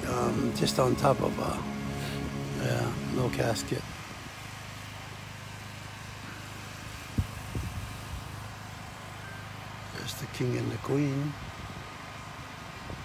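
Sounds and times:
low outdoor rumble: 0.0 - 9.1.

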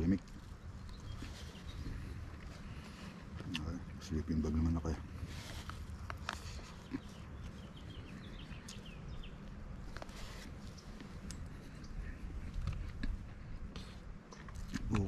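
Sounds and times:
low steady rumble: 0.0 - 15.0
small bird chirping: 0.3 - 3.8, 5.6 - 13.2.

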